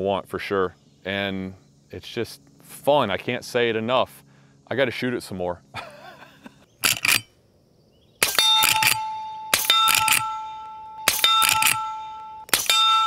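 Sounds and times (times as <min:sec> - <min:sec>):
steel target ringing: 0:08.2 - 0:13.0.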